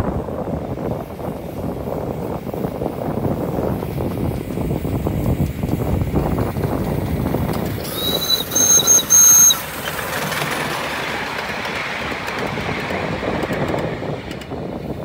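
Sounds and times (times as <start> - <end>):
train running on track: 0.0 - 15.0
train whistle blasts: 7.8 - 9.7.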